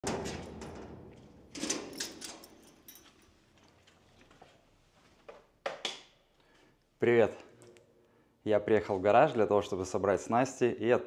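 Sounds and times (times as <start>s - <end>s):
metal garage door rattling: 0.0s - 2.7s.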